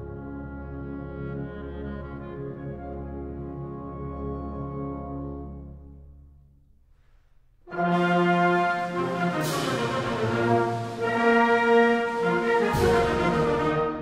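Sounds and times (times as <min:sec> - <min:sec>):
wind band playing: 0:00.0 - 0:06.0, 0:07.7 - 0:14.0
sustained brass chords: 0:07.7 - 0:14.0.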